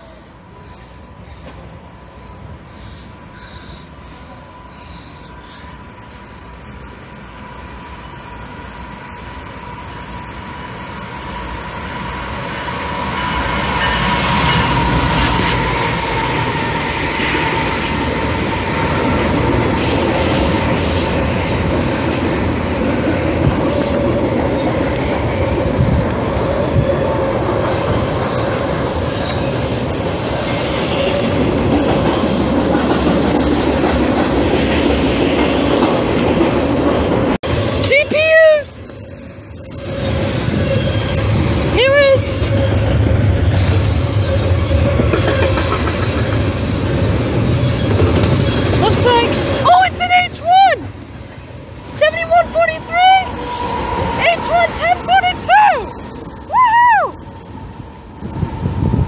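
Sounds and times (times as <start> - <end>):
freight train wheels rumbling: 0.0 - 59.0
wheel squeal: 39.6 - 41.7
wheels clicking over rail joints: 43.4 - 50.0.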